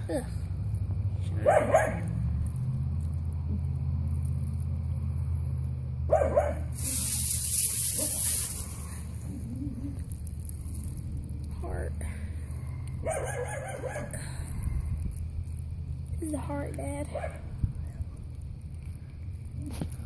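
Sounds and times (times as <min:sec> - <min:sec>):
low hum: 0:00.0 - 0:20.0
dog barking: 0:01.4 - 0:02.1, 0:06.1 - 0:06.7, 0:13.0 - 0:14.2
hiss: 0:06.6 - 0:10.1.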